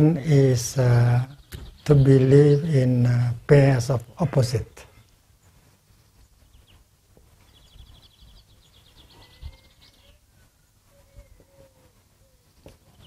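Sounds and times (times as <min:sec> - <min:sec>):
bird trilling: 0:07.6 - 0:10.2.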